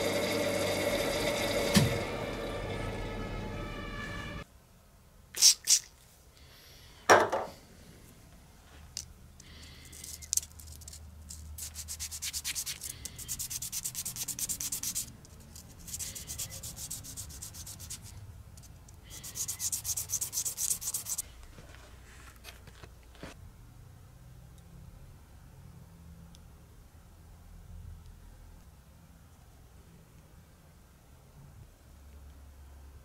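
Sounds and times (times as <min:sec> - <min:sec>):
metal part wet sanding: 0:11.6 - 0:18.1, 0:19.1 - 0:21.2.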